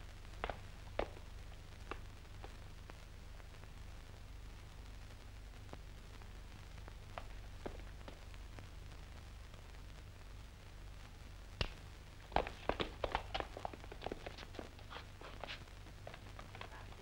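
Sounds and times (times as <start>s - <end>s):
low steady hum: 0.0s - 17.0s
footsteps on a road: 0.4s - 1.3s.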